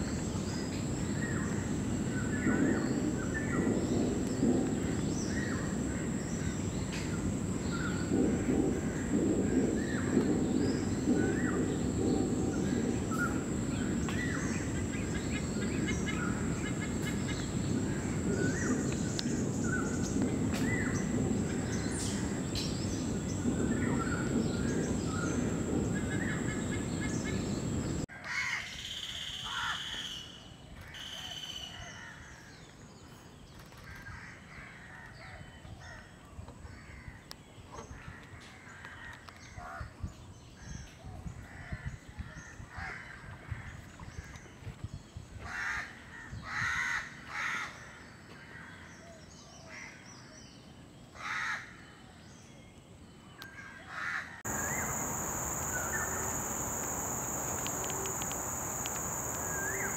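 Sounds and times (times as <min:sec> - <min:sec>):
steady low rumble: 0:54.5 - 0:59.9
thin high whine: 0:54.5 - 0:59.9
wild birds calling: 0:54.5 - 0:59.9.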